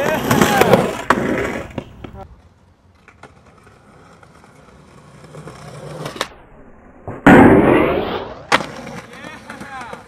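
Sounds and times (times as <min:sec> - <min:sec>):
skateboard wheels rolling on concrete: 0:00.0 - 0:10.0
skateboard landing slap: 0:07.0 - 0:10.0
skateboard pop: 0:07.0 - 0:10.0.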